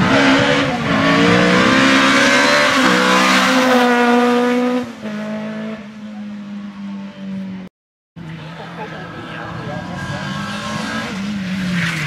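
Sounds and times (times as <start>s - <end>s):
rally car engine speeding past: 8.2s - 12.0s.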